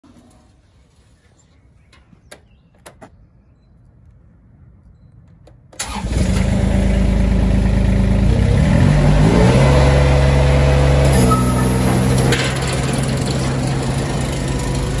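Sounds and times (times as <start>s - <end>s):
diesel engine cranking and running: 5.8s - 15.0s.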